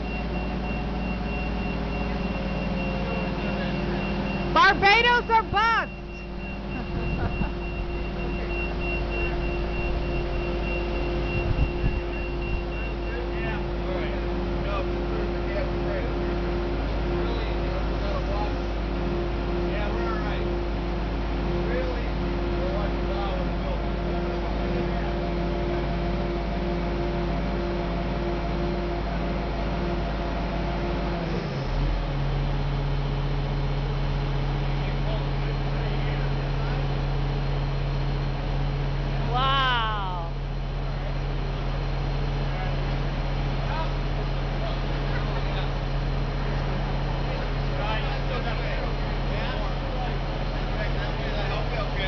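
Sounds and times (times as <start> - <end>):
high-pitched warning beep: 0.0 - 13.7
crane engine running: 0.0 - 52.0.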